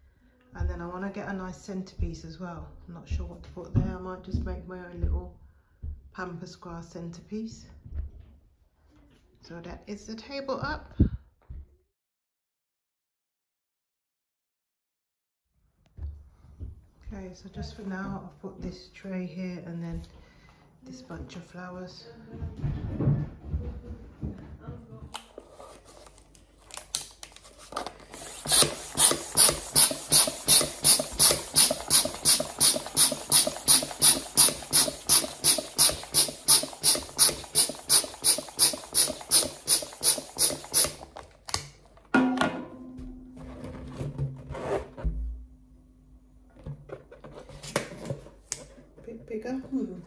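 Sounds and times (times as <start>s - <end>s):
hand pump rushing air: 28.0s - 41.3s.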